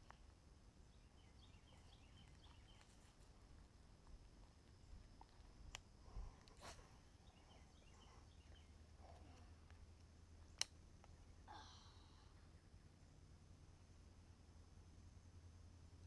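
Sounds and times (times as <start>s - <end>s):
faint high chirps: 0.0s - 4.1s, 6.6s - 13.1s
faint outdoor rumble: 0.0s - 16.0s.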